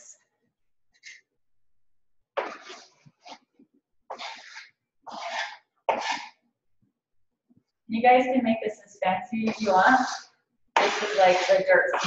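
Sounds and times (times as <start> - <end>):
spatula scraping in metal pot: 2.3 - 6.5, 9.3 - 12.0.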